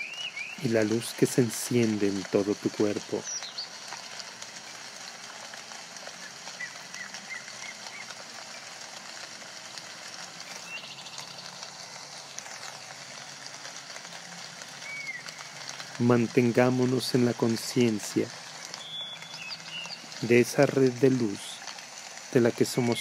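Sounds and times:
steady background hiss: 0.0s - 23.0s
faint bird-like chirps: 18.8s - 20.1s.

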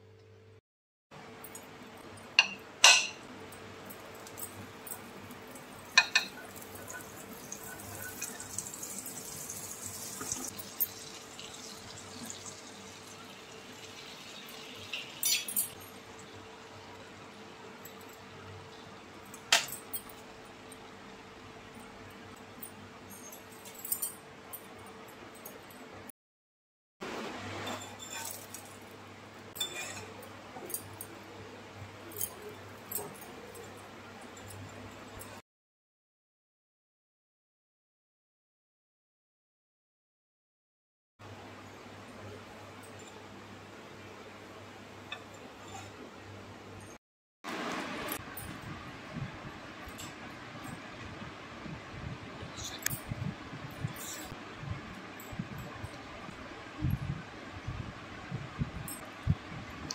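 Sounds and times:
butter sizzling on griddle: 5.9s - 15.4s.

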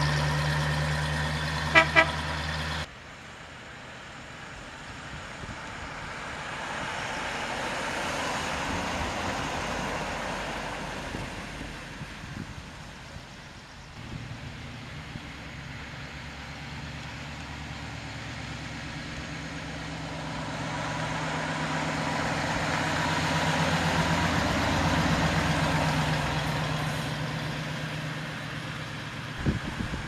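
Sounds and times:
car engine driving past: 14.0s - 30.0s.

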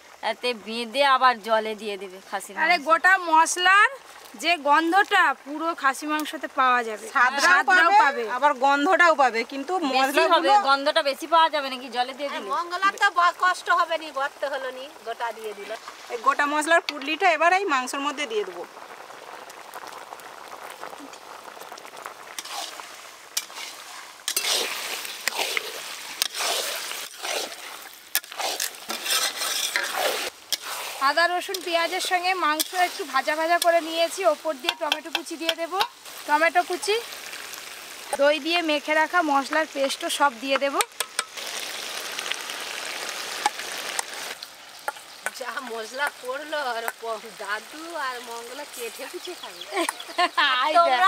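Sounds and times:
meat sizzling in a pan: 0.0s - 51.0s
metal spatula clicking on pan: 34.6s - 36.0s.

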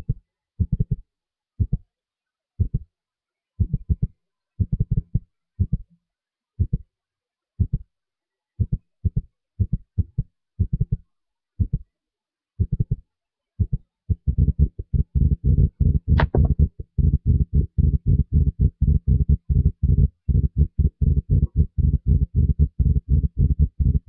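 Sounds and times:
low thumping beat: 0.6s - 1.0s, 1.6s - 1.8s, 2.6s - 2.8s, 3.6s - 5.8s, 8.6s - 11.0s, 13.6s - 24.0s.

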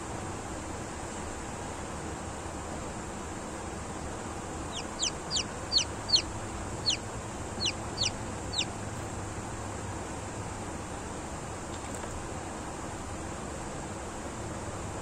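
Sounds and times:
chick peeping: 4.6s - 8.8s.

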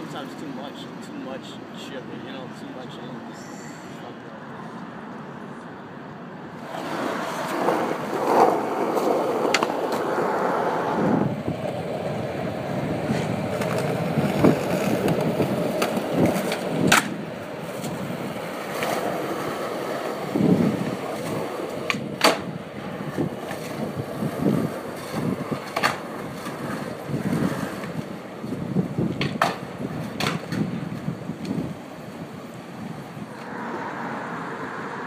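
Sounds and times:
skateboard wheels rolling on concrete: 4.0s - 35.0s
skateboard clacks: 6.6s - 32.6s.

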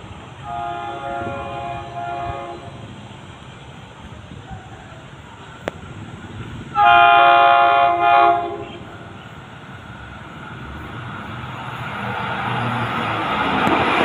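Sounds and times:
train rumble: 0.0s - 14.0s
multi-tone train horn: 0.4s - 3.0s, 6.7s - 9.4s.

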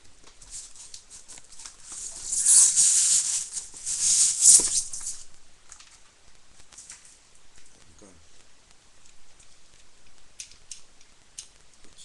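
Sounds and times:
rustling in foam packaging: 0.4s - 6.1s.

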